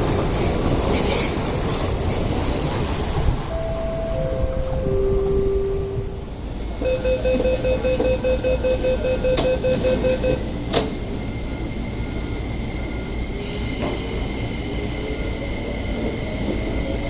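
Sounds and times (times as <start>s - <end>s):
steady high tone from train: 0.0s - 17.0s
train doors shutting knock: 9.2s - 11.1s.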